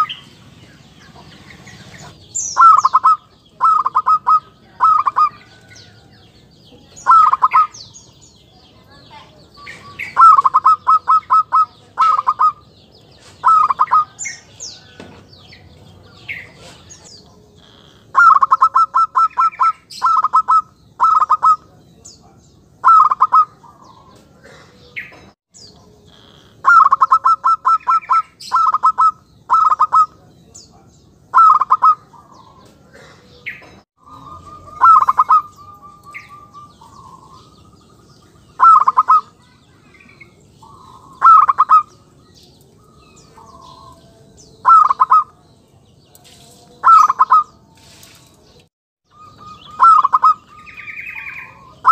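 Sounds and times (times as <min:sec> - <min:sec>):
dove cooing: 0:01.1 - 0:05.6, 0:07.0 - 0:07.8, 0:09.6 - 0:15.0, 0:15.6 - 0:21.7, 0:22.8 - 0:25.2, 0:26.0 - 0:30.2, 0:31.3 - 0:39.5, 0:40.2 - 0:42.1, 0:42.8 - 0:45.4, 0:46.8 - 0:47.6, 0:49.1 - 0:51.9.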